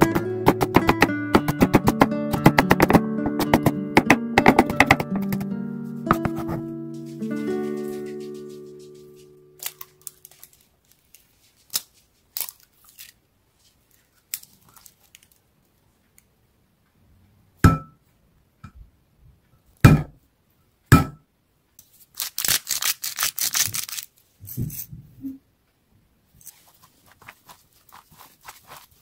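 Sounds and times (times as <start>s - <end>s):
sharp knocks on hard surface: 0.0s - 5.5s, 6.1s - 6.6s
rustling: 6.1s - 15.5s, 26.3s - 29.0s.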